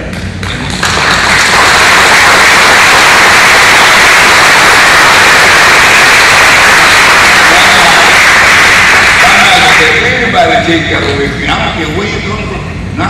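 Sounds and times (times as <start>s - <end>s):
audience applauding: 0.4s - 10.4s.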